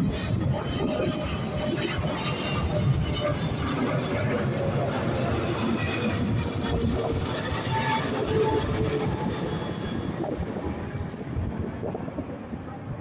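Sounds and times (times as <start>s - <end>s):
jet airliner rumble overhead: 0.0s - 13.0s.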